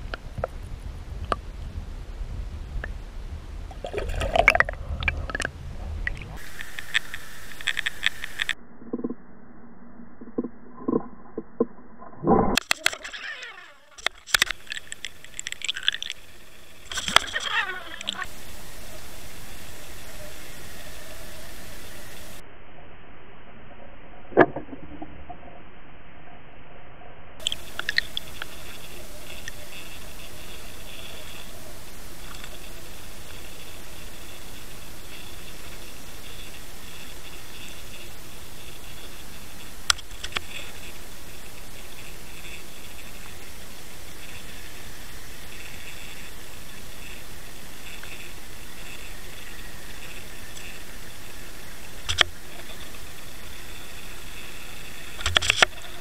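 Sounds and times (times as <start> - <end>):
water rushing around camera: 0.0 - 9.2, 10.2 - 22.4, 27.4 - 56.0
splashing and crackling: 3.7 - 8.6, 12.6 - 21.0, 27.4 - 56.0
clicks and ticks: 4.3 - 9.2, 12.3 - 18.3, 39.8 - 40.9, 52.0 - 53.0, 55.1 - 56.0.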